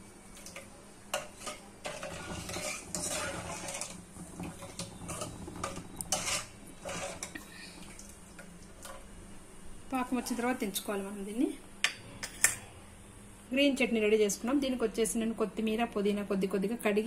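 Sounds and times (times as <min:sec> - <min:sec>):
metal ladle scraping a pan: 0:00.5 - 0:07.4.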